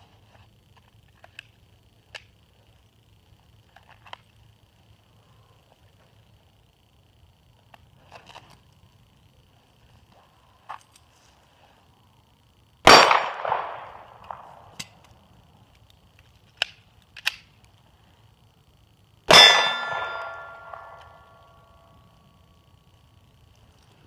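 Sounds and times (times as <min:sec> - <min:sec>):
pistol shots: 0:12.8 - 0:14.5, 0:19.3 - 0:21.0
steel targets ringing: 0:19.3 - 0:21.2.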